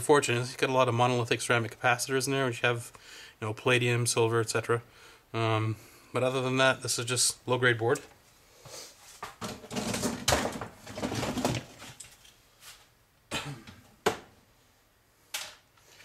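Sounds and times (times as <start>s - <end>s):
scrap parts rustling and clattering: 9.4s - 12.4s.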